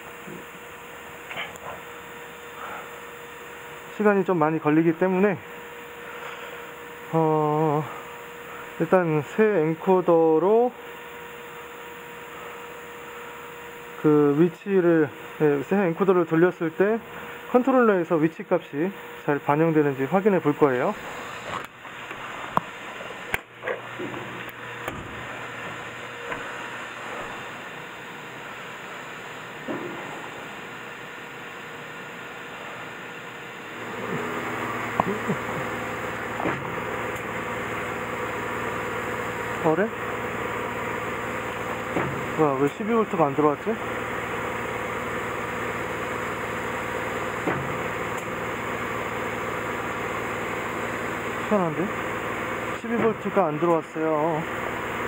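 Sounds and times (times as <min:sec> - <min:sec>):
factory hum and hiss: 0:00.0 - 0:55.0.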